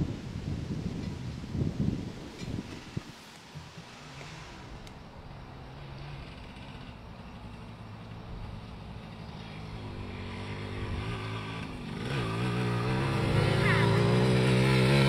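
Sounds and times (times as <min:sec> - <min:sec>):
motorcycle engine running: 0:05.7 - 0:15.0.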